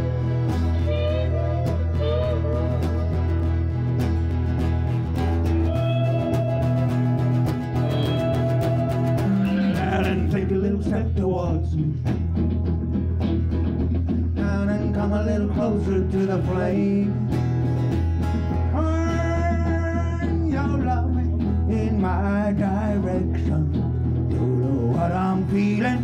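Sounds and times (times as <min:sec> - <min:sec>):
accordion: 0:00.0 - 0:10.0
low bass: 0:00.0 - 0:26.0
strummed acoustic guitar: 0:00.0 - 0:26.0.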